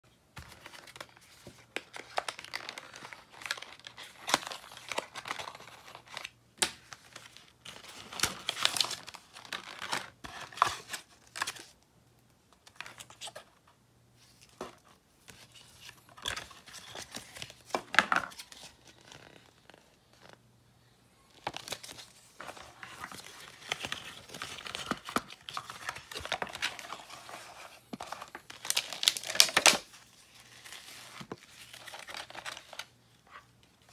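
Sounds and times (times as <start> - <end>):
packaging rustling and crinkling: 21.3 - 33.0.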